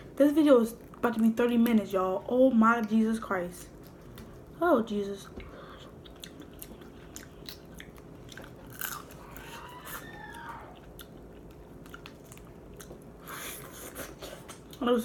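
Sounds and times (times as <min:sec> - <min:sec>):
chewing: 0:03.7 - 0:04.6, 0:05.2 - 0:14.8.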